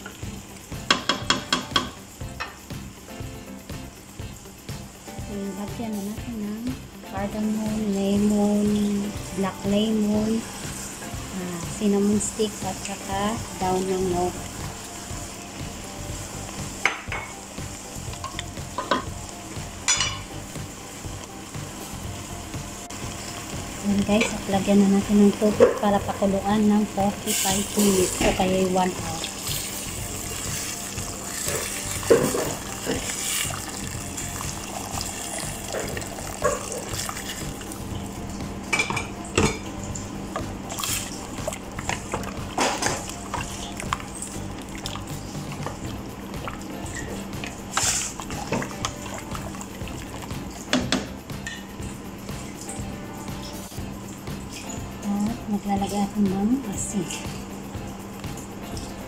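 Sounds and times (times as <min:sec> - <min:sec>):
spices clinking against a pot: 0:00.0 - 0:02.8, 0:16.4 - 0:20.4, 0:23.9 - 0:26.5, 0:38.7 - 0:39.8
chicken sizzling in a pot: 0:00.0 - 0:59.0.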